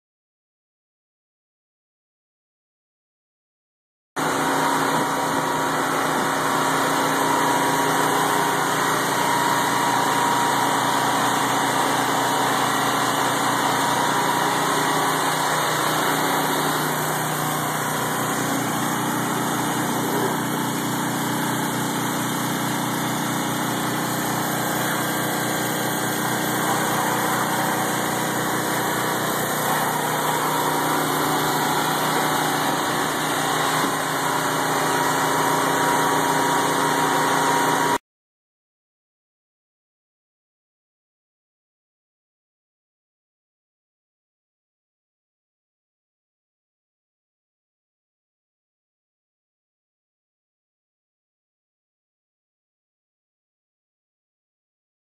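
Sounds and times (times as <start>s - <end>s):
motor humming steadily: 4.2s - 38.0s.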